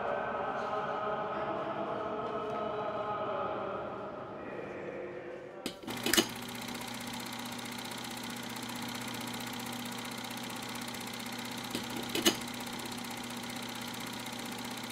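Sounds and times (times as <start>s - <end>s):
machine hum: 5.7s - 14.9s.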